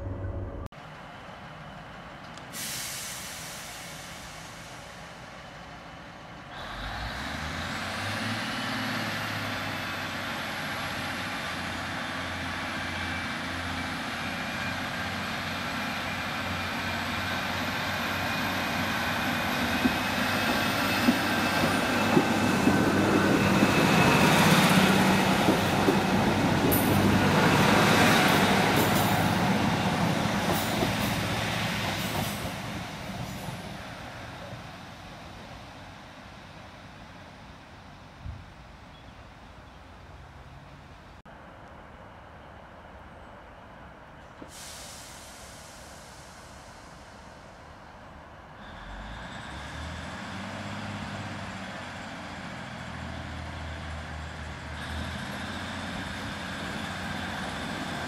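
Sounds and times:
diesel train engine: 0:00.0 - 0:58.0.

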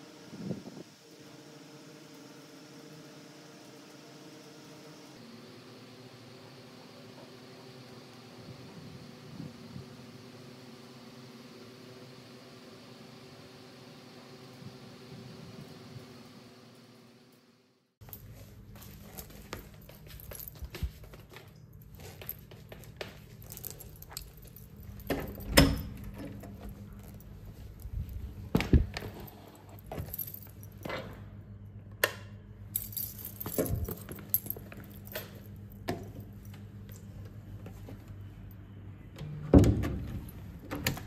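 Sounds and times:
keys jangling: 0:18.1 - 0:28.2, 0:29.0 - 0:30.9, 0:32.7 - 0:36.4.

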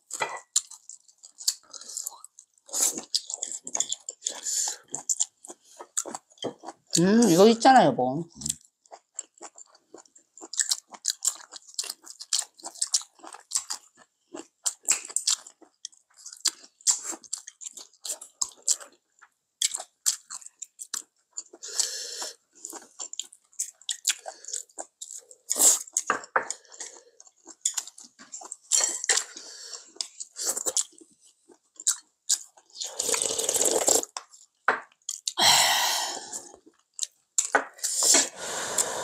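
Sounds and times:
chewing and biting sounds: 0:00.0 - 0:07.3, 0:08.3 - 0:35.4, 0:36.3 - 0:39.0.

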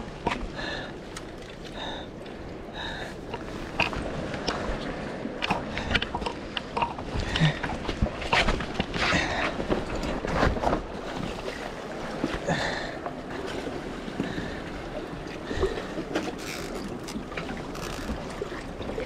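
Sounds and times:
faint rustles and knocks: 0:16.1 - 0:19.0.

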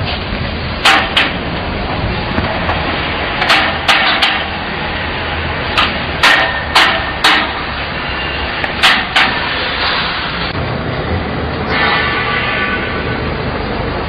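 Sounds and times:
sharp metal knocks: 0:00.8 - 0:01.5, 0:02.4 - 0:04.6, 0:05.7 - 0:07.8, 0:08.6 - 0:09.6.

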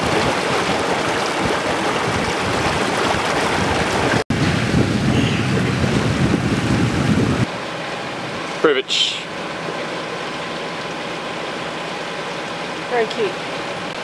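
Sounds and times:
wind on microphone: 0:00.0 - 0:07.5
water splashing along a hull: 0:00.0 - 0:14.0.

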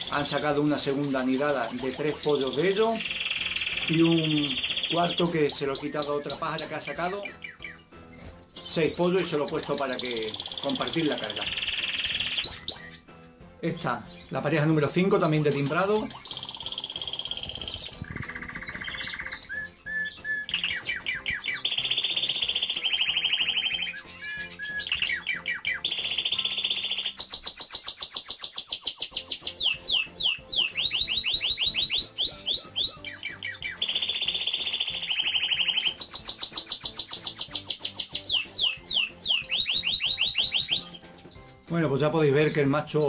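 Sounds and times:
canary singing trills: 0:00.0 - 0:13.0, 0:14.0 - 0:43.0.

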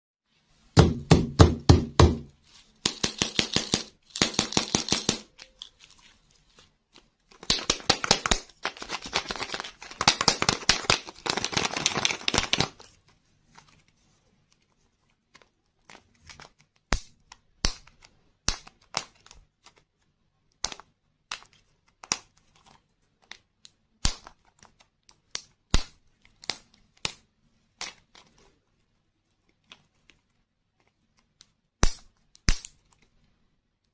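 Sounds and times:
plastic wrapping crinkling and tearing: 0:05.4 - 0:13.9
sharp plastic crackles and clicks: 0:07.0 - 0:12.9.

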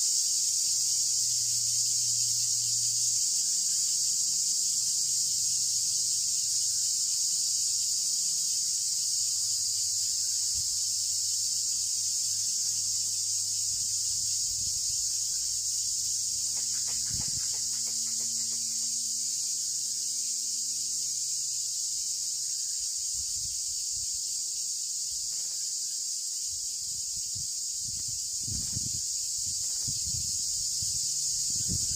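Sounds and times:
forest insects chorus: 0:00.0 - 0:31.9.

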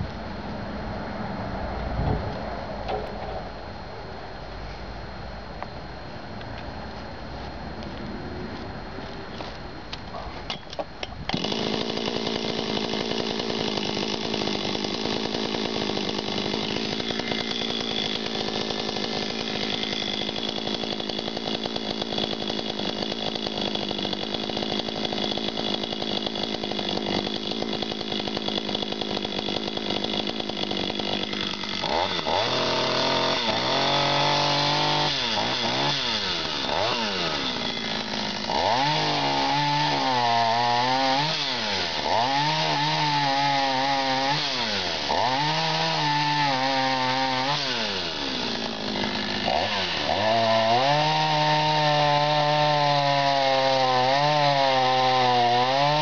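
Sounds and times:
chainsaw starting and idling: 0:10.5 - 0:56.0
chainsaw revving: 0:11.3 - 0:56.0.

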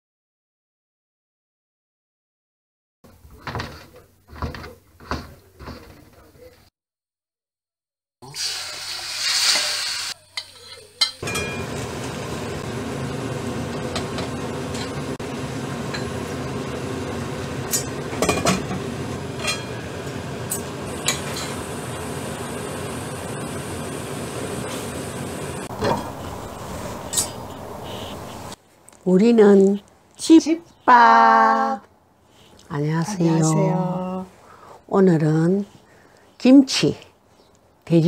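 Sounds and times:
food sizzling in a pot: 0:08.2 - 0:28.6
utensils and glass lid clinking: 0:10.4 - 0:11.8, 0:19.4 - 0:19.8, 0:27.0 - 0:27.5.

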